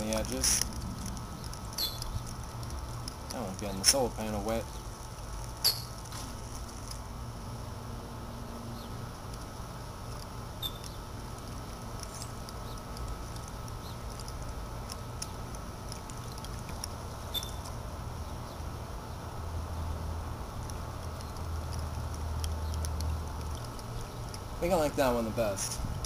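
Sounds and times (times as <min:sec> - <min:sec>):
low steady rumble: 0:00.0 - 0:26.0
water jets pattering into water: 0:11.1 - 0:17.8.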